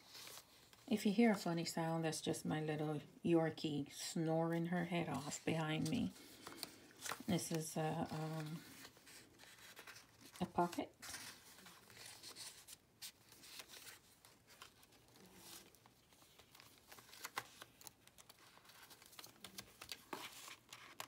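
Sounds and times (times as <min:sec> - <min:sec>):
paper pages rustling: 0:00.0 - 0:00.9, 0:05.1 - 0:21.0.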